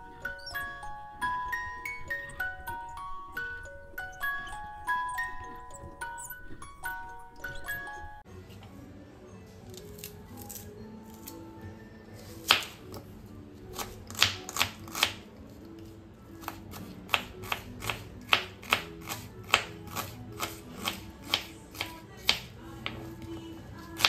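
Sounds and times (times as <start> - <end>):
soft background music: 0.0 - 24.0
knife chopping on wooden board: 16.4 - 23.0.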